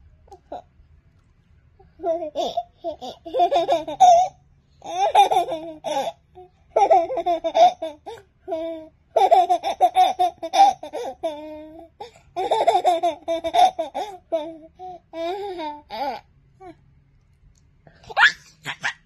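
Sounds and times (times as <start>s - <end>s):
baby laughing: 2.0s - 11.8s, 12.4s - 16.2s, 18.1s - 19.0s.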